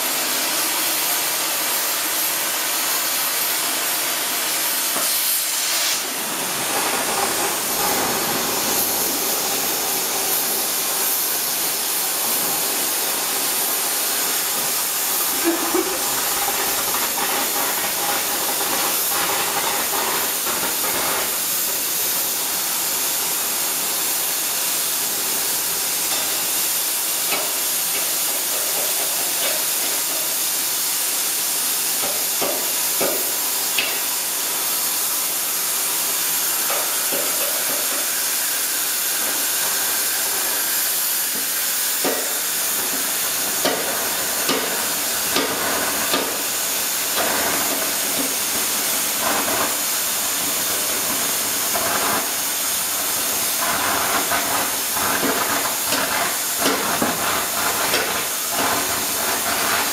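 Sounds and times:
cutting torch hissing: 0.0 - 59.9.

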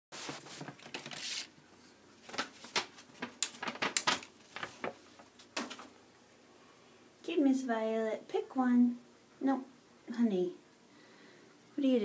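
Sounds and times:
paper slips rustling: 0.2 - 1.6, 2.2 - 5.9.

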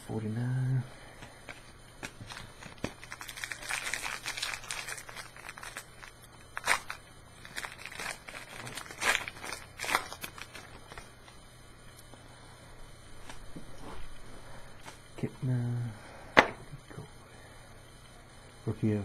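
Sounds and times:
wrapper crinkling and tearing: 2.0 - 11.1.

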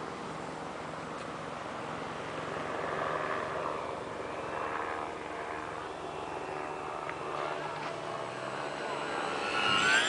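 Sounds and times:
model airplane motor buzzing: 2.2 - 10.0.

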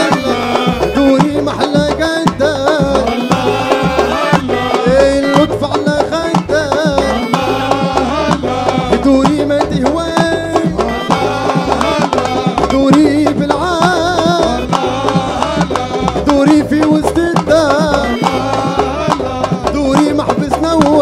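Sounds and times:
hand drums beating: 0.0 - 21.0
keyboards playing: 0.0 - 21.0
young man singing: 0.0 - 21.0.

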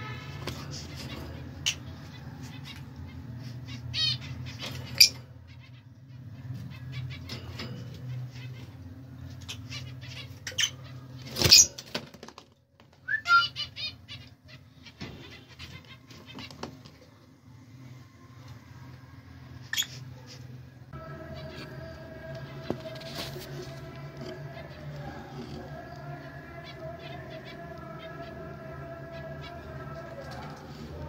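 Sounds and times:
birds chirping and squeaking: 0.4 - 12.0, 13.1 - 20.6, 21.2 - 31.0
bird squawk: 13.1 - 16.7.

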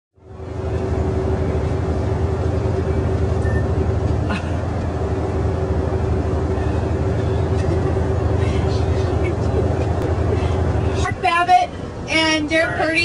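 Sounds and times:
bus engine and road rumble: 0.2 - 13.0
droning hum: 0.2 - 13.0.

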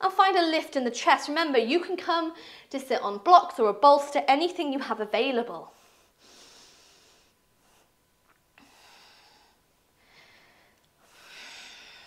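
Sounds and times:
soft breathing: 5.7 - 12.0.

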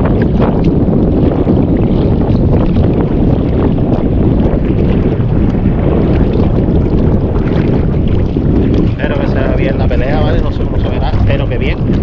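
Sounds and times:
wind rumbling against microphone: 0.0 - 12.0.

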